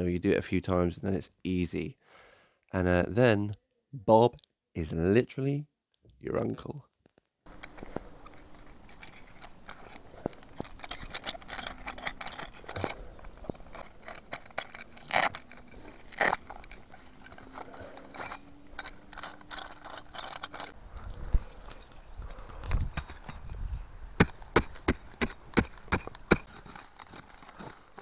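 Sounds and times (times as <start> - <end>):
clicks and scrapes of gear: 7.0 - 23.5, 24.2 - 28.0
paper rustling and crinkling: 26.4 - 28.0.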